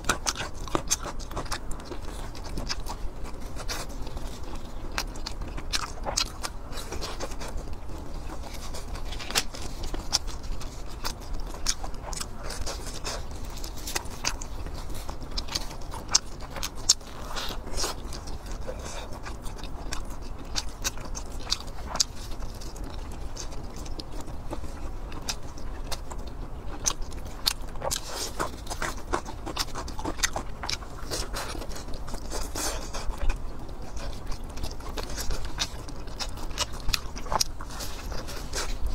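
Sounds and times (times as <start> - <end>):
person chewing and biting: 0.0 - 38.9.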